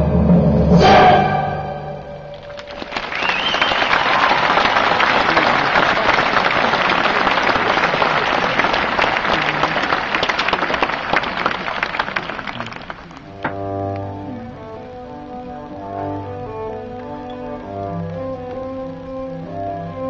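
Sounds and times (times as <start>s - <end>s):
audience applauding: 2.3s - 13.5s.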